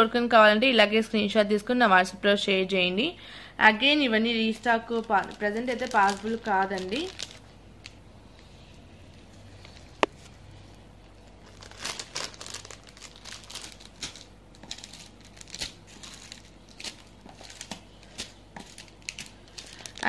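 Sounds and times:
packaging crinkling: 0:04.6 - 0:08.5, 0:09.1 - 0:20.0.

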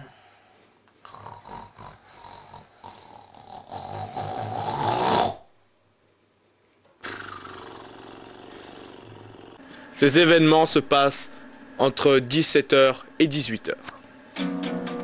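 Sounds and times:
person snoring: 0:01.0 - 0:05.5, 0:07.0 - 0:14.0
steady sound: 0:08.4 - 0:15.0.

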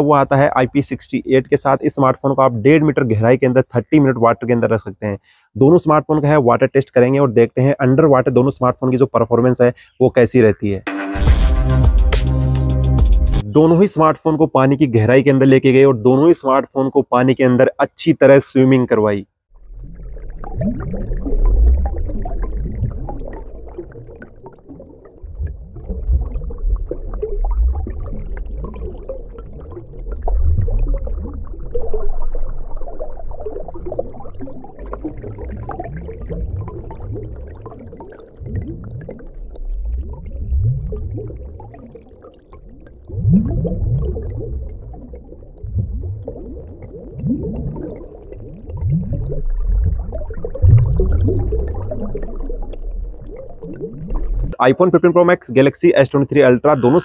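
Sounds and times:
underwater rumble of moving water: 0:19.5 - 0:54.6
short rising warbles: 0:19.6 - 0:54.6.

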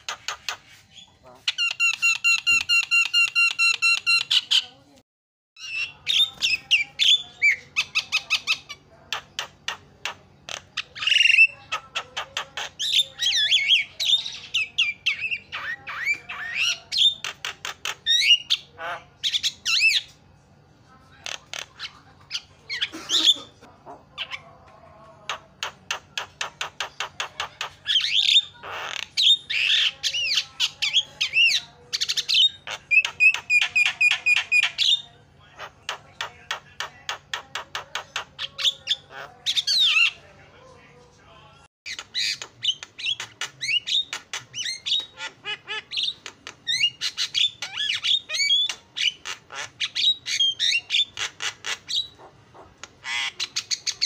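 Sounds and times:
bird singing varied song: 0:05.6 - 0:20.2, 0:24.1 - 0:40.3, 0:41.9 - 0:54.0.

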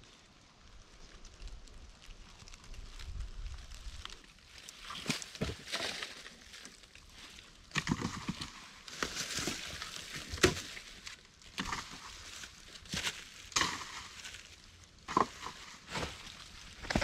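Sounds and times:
irregular crunches and rustles: 0:00.2 - 0:17.0.

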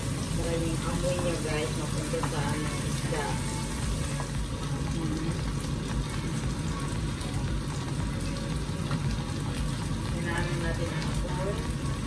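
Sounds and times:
fish sizzling in oil: 0:00.0 - 0:12.0.

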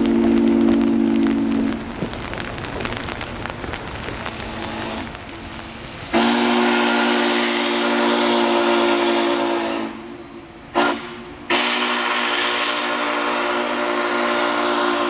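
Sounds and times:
rain: 0:00.0 - 0:15.0
steam whistle: 0:06.1 - 0:15.0.

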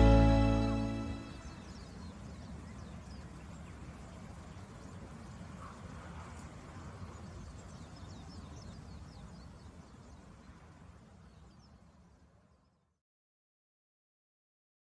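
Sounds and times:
low rumble: 0:00.0 - 0:01.5
small birds chirping: 0:00.0 - 0:13.0.

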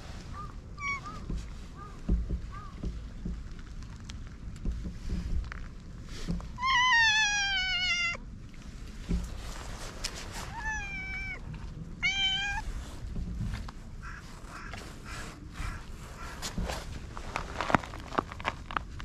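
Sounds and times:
cat meowing: 0:06.6 - 0:08.2, 0:10.5 - 0:11.4, 0:12.0 - 0:12.7.

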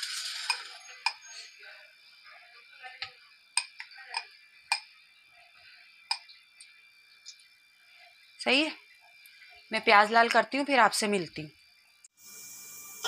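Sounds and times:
sharp pops from frying: 0:00.0 - 0:01.2, 0:03.0 - 0:05.0, 0:06.0 - 0:07.6
onions sizzling in hot fat: 0:00.0 - 0:13.0.

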